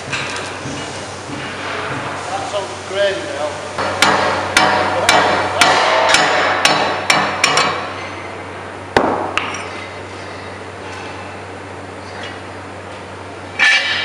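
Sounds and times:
hammer striking metal cover: 0:03.8 - 0:07.9.

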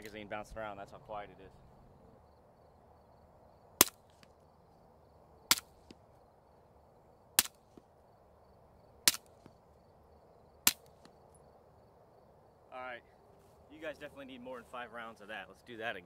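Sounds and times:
suppressed pistol shots: 0:09.0 - 0:09.4.

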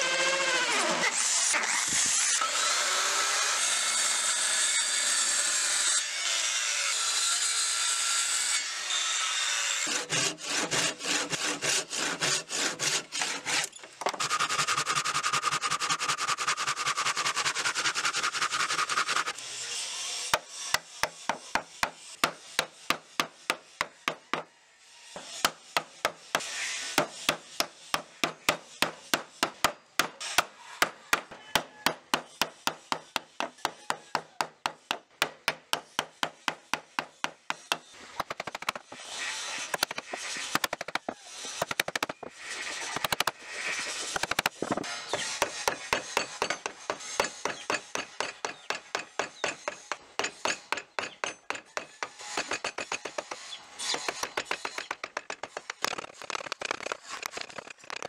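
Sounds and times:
tool scraping wood: 0:09.8 - 0:19.4, 0:25.1 - 0:58.0.

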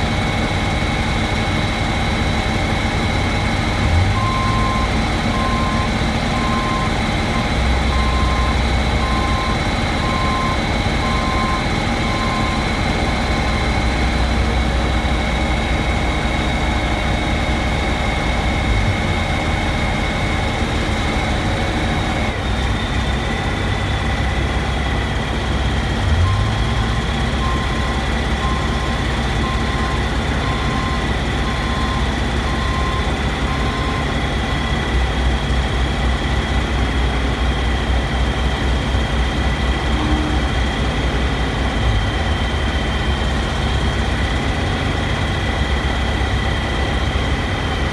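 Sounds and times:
construction equipment engine rumble: 0:00.0 - 0:47.9
high machine whine: 0:00.0 - 0:47.9
warning beeper: 0:39.8 - 0:40.8.

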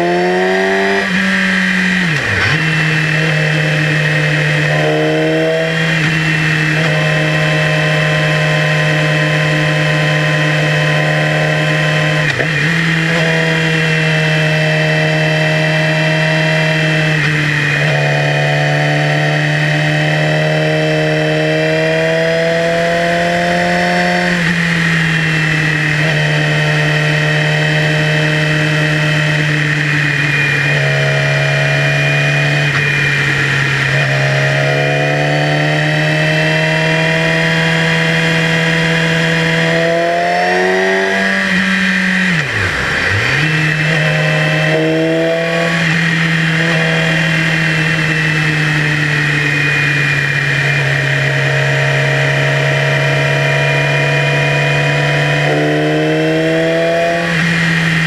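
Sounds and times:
motorcycle engine: 0:00.0 - 0:58.0.

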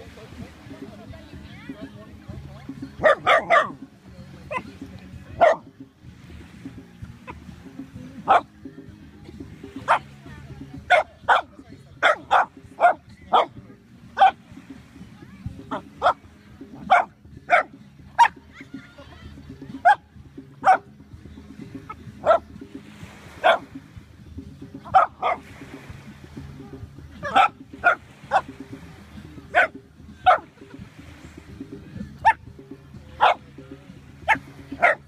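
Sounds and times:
dog barking: 0:03.0 - 0:03.8, 0:04.5 - 0:04.7, 0:05.4 - 0:05.7, 0:08.3 - 0:08.5, 0:09.8 - 0:10.1, 0:10.9 - 0:13.6, 0:14.2 - 0:14.4, 0:15.7 - 0:16.2, 0:16.9 - 0:18.4, 0:20.6 - 0:20.9, 0:22.2 - 0:22.4, 0:23.4 - 0:23.7, 0:24.9 - 0:25.4, 0:27.2 - 0:28.5, 0:29.5 - 0:30.5, 0:33.2 - 0:33.4, 0:34.3 - 0:35.0.

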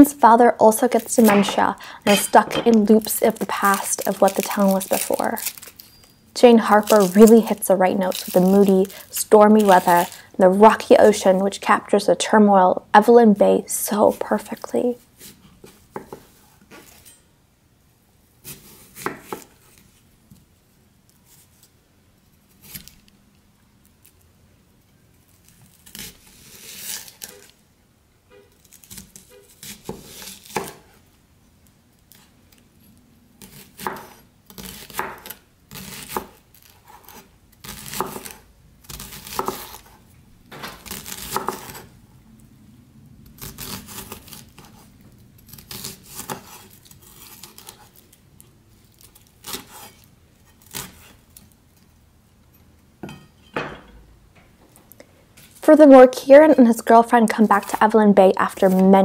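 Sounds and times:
knife cutting shallot on board: 0:01.2 - 0:03.0, 0:18.5 - 0:19.5, 0:29.6 - 0:31.0, 0:33.4 - 0:40.0, 0:40.8 - 0:41.9.

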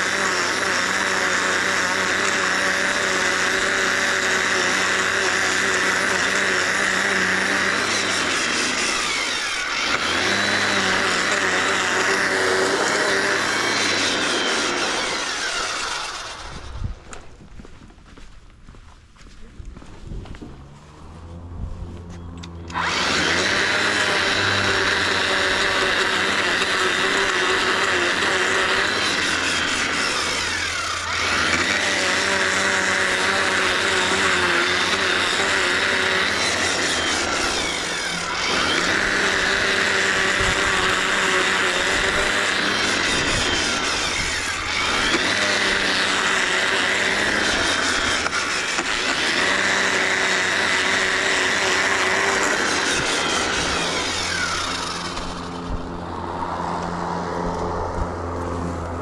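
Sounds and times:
string trimmer running: 0:00.0 - 0:17.7, 0:19.7 - 0:59.0.

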